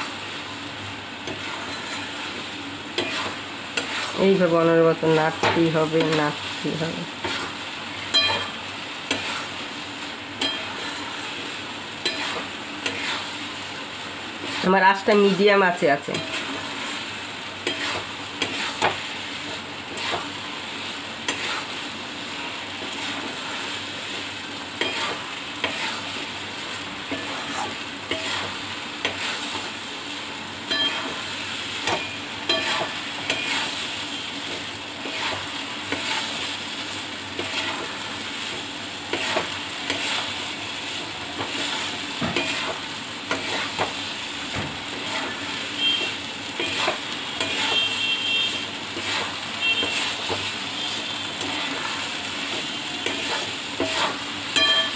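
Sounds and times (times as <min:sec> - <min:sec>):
low sizzle: 0:00.0 - 0:54.9
spatula scraping metal pan: 0:01.3 - 0:02.2, 0:03.0 - 0:04.2, 0:10.4 - 0:11.2, 0:12.0 - 0:13.3, 0:17.6 - 0:19.0, 0:21.2 - 0:21.7, 0:24.8 - 0:26.1, 0:27.1 - 0:29.7, 0:37.4 - 0:38.0, 0:39.1 - 0:43.9, 0:44.9 - 0:48.2, 0:49.0 - 0:54.7.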